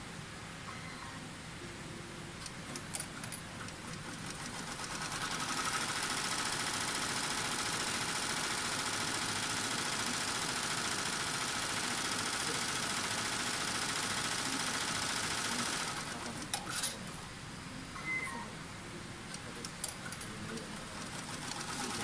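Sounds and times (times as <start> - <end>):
embroidery machine stitching: 2.4 - 16.9, 19.3 - 22.0.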